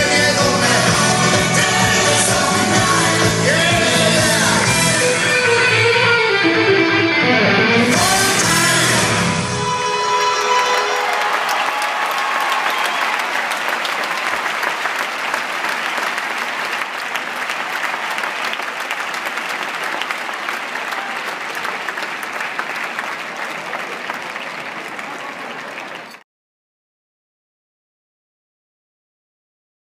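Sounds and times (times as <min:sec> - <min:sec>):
large audience applauding: 0:09.7 - 0:26.2.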